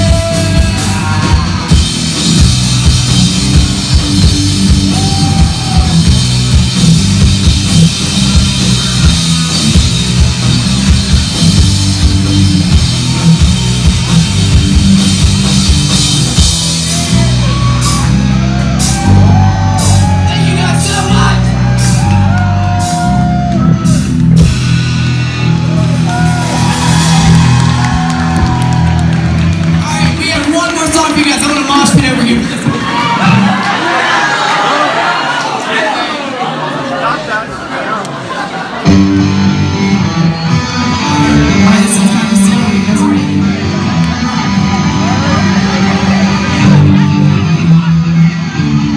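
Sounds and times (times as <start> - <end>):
drum kit: 0.0 - 32.5
distorted electric guitars: 0.0 - 33.8, 38.8 - 48.9
bass guitar: 0.0 - 34.2, 38.8 - 48.9.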